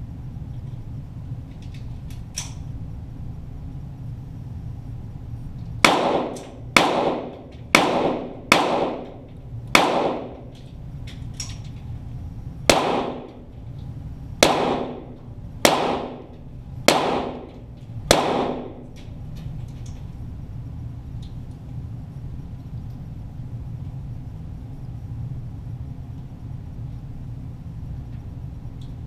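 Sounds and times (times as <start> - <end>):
pistol shots with echo: 5.8 - 10.6, 12.7 - 13.6, 14.4 - 19.0.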